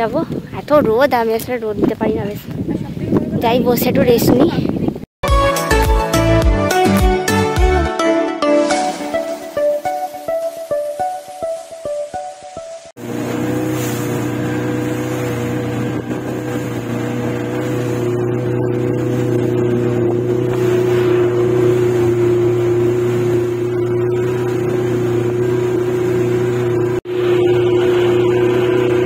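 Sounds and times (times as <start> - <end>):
plucked guitar music: 5.2 - 12.9
motorboat engine droning: 8.7 - 29.0.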